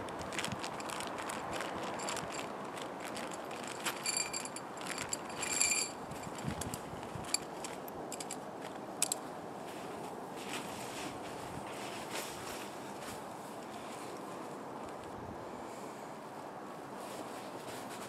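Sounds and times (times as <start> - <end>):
nylon fabric rustling: 0.0 - 8.8, 9.6 - 14.1, 17.0 - 18.0.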